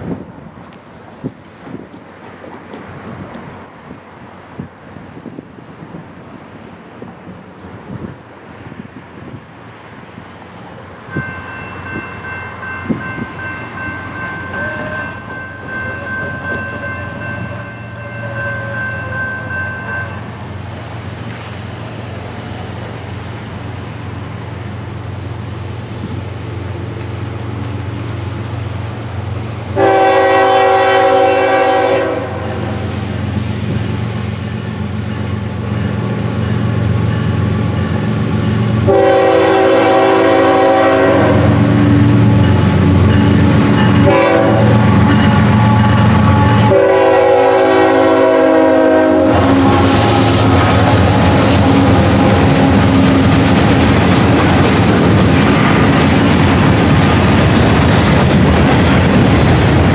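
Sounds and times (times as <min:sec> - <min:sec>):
train rumble: 0:00.0 - 0:59.9
locomotive horn blasts: 0:14.4 - 0:20.2, 0:29.8 - 0:32.8, 0:38.8 - 0:50.6.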